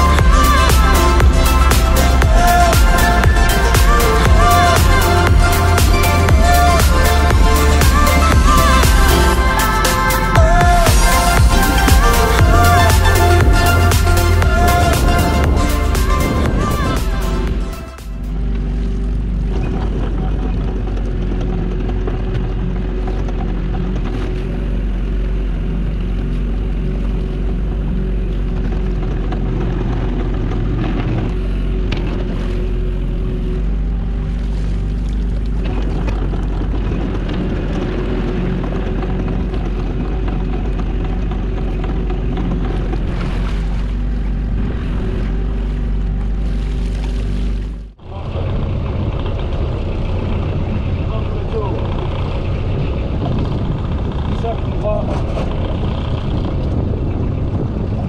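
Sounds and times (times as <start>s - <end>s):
boat engine droning: 0.0s - 58.0s.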